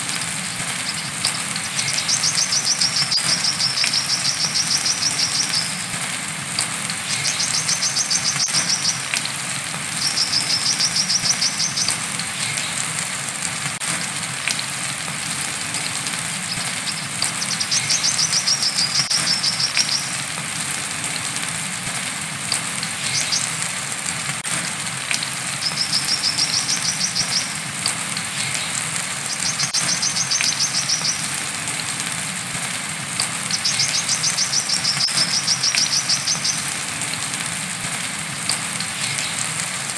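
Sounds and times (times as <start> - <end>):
rain hiss: 0.0 - 39.9
bird trilling: 0.5 - 5.9, 7.0 - 9.2, 9.9 - 12.7, 16.4 - 20.2, 23.0 - 23.6, 25.6 - 27.6, 28.4 - 31.3, 33.5 - 36.7.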